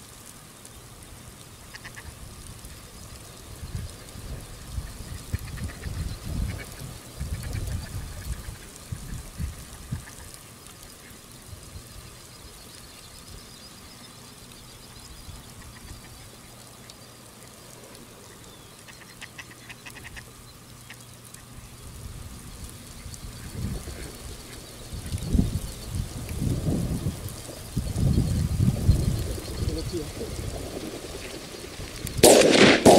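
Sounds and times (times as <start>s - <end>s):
distant ducks quacking: 1.5s - 21.9s, 22.5s - 25.9s, 29.1s - 32.9s
wind buffeting microphone: 2.1s - 10.4s, 21.6s - 32.9s.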